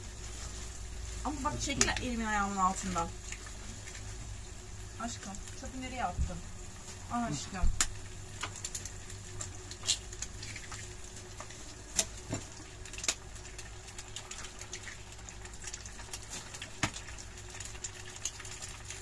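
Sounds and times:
eggs cracked into a pan: 7.8 - 15.0, 15.7 - 18.7.

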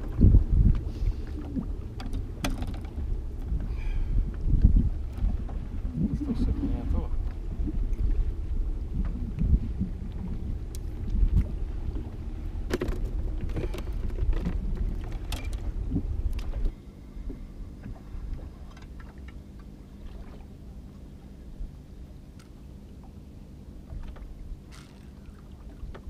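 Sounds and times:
faint steady hum: 0.0 - 26.0
low wind rumble: 0.0 - 26.0
water against boat hull: 0.0 - 26.0.

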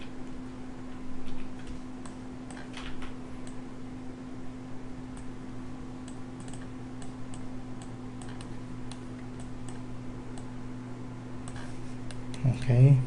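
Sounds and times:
low electrical hum: 0.0 - 13.0
mouse and keyboard clicks: 6.4 - 9.8.

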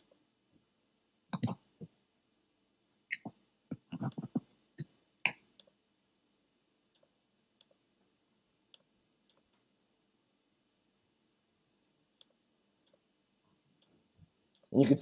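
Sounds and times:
computer mouse clicks: 8.7 - 9.7, 12.2 - 13.0.

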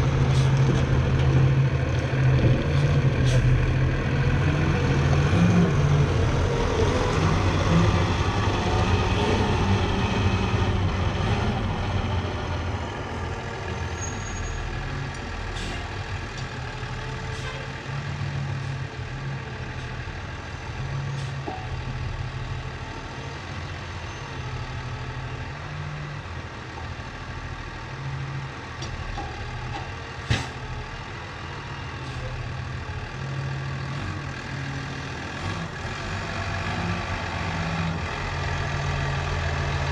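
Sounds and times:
engine running steadily: 15.1 - 23.2, 25.6 - 39.9.

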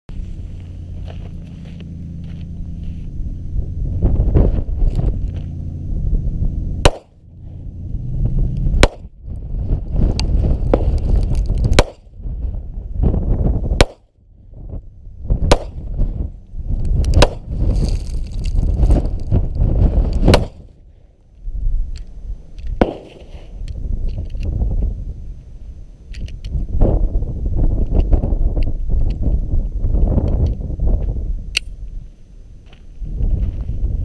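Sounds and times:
low rumble: 0.1 - 34.0
pistol shots: 6.8 - 7.2, 8.8 - 9.1, 11.8 - 12.0, 13.8 - 14.0, 15.5 - 15.8, 20.3 - 20.6, 22.8 - 23.4
bullets striking gravel: 6.8 - 7.3, 8.7 - 9.2, 10.2 - 12.1, 13.8 - 14.2, 15.4 - 15.9, 16.9 - 19.3, 20.2 - 20.7, 22.6 - 23.6.

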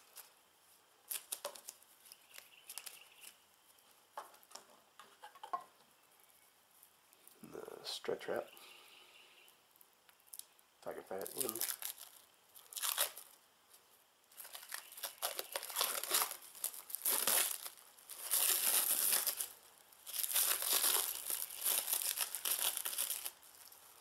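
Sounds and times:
plastic wrap crinkling: 1.1 - 3.4, 11.1 - 13.4, 14.3 - 24.0.

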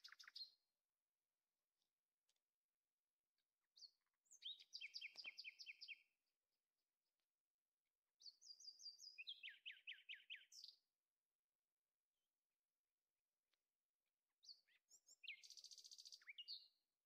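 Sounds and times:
songbird chirping: 0.0 - 0.8, 3.3 - 6.3, 8.1 - 11.0, 14.3 - 17.0.

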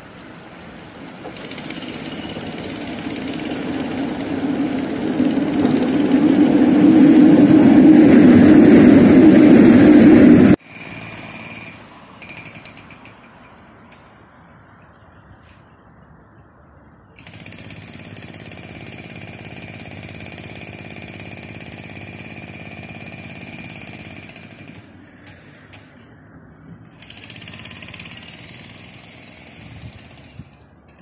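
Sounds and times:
power tool whining: 1.2 - 13.0.

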